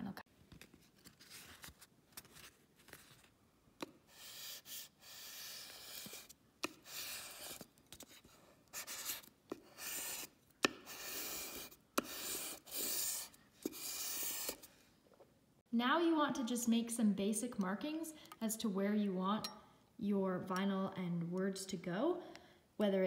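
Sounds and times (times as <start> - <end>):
squeegee scratchy strokes: 4.1 - 14.7.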